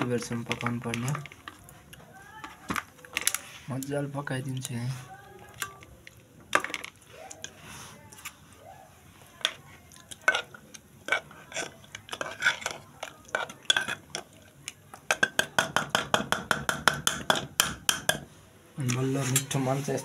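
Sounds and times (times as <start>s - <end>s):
utensil clinking in metal pot: 10.2s - 14.4s, 15.0s - 18.2s.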